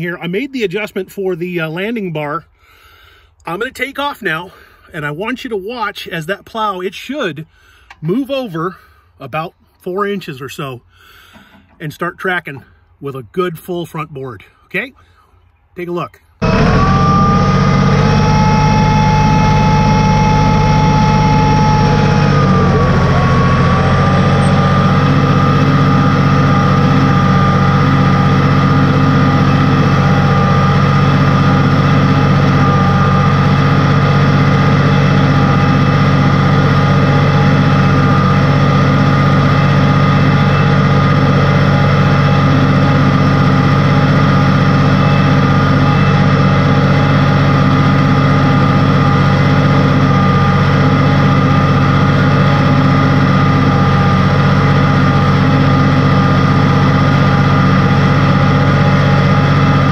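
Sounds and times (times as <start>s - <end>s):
tractor engine under load: 16.4s - 59.9s.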